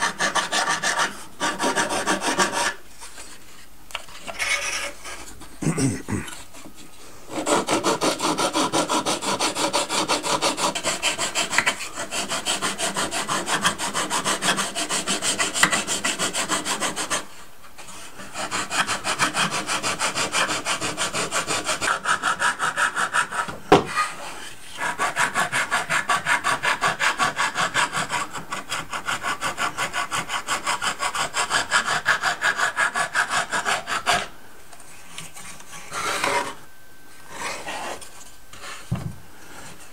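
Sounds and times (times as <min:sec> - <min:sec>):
sanding block rubbing wood: 0:00.0 - 0:02.8, 0:07.3 - 0:23.5, 0:24.7 - 0:34.3.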